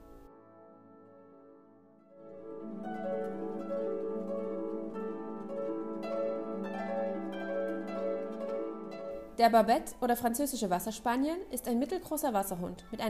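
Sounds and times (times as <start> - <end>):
plucked harp-like melody: 2.2 - 10.4.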